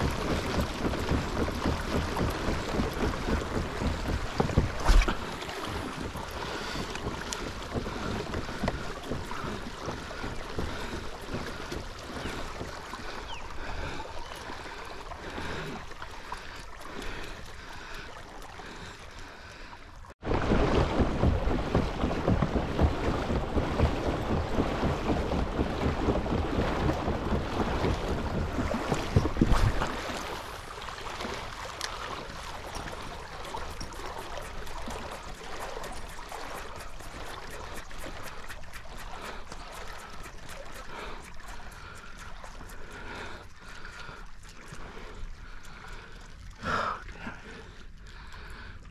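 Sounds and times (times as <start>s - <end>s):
wind buffeting microphone: 0.0s - 14.7s, 20.2s - 30.7s
water washing along kayak hull: 0.0s - 48.9s.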